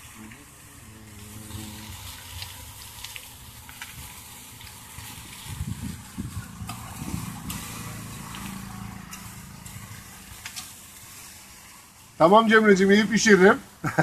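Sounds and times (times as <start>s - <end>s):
low engine rumble: 0.0s - 14.0s
meat sizzling in butter: 0.0s - 14.0s.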